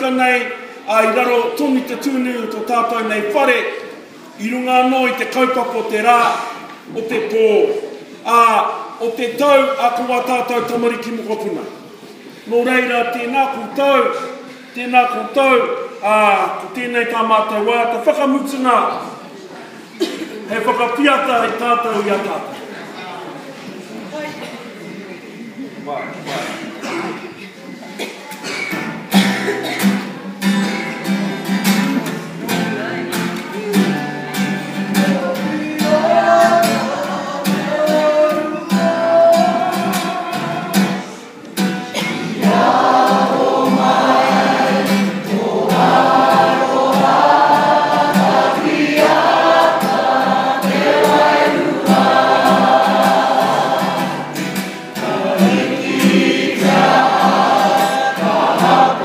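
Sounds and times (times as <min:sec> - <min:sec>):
group singing together: 0:33.8 - 0:59.0.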